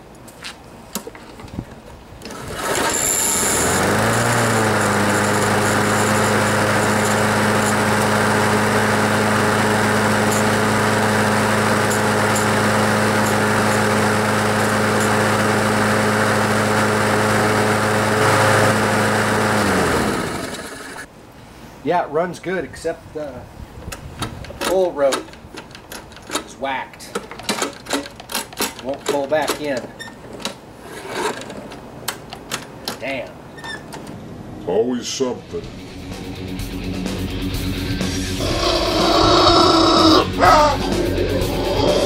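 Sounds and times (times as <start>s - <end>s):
lawn mower engine running: 2.2s - 21.1s, 35.6s - 42.0s.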